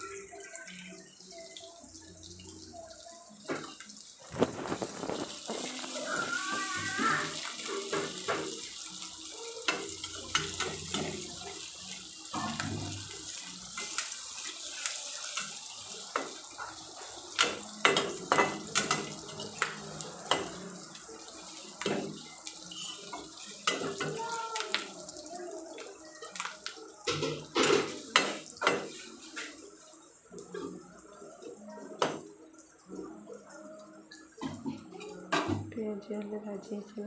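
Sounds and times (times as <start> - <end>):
onions sizzling in oil: 0.0 - 35.8
metal spatula scraping a pan: 22.5 - 24.1.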